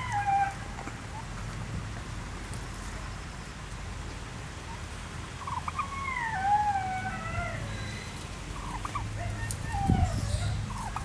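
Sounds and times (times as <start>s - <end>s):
turkey calling: 0.0s - 1.4s, 4.6s - 11.0s.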